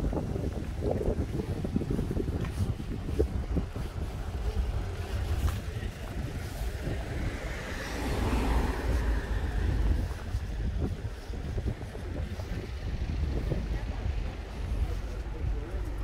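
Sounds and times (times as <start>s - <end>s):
street traffic: 0.0s - 16.0s
wind buffeting microphone: 0.0s - 16.0s
car passing: 5.8s - 11.1s.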